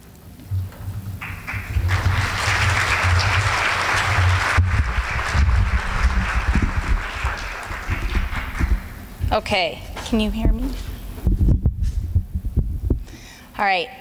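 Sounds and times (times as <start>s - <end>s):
audience applauding: 1.2s - 9.1s
microphone handling bumps: 7.8s - 13.2s.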